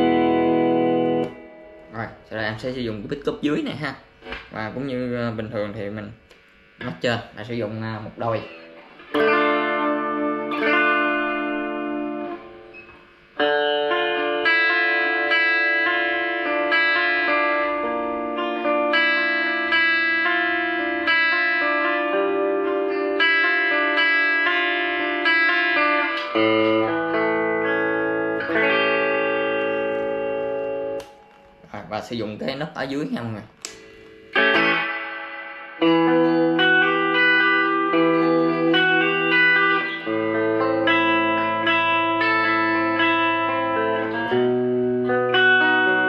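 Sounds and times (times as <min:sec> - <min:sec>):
electric guitar through amplifier: 0:00.0 - 0:32.4, 0:33.3 - 0:46.0.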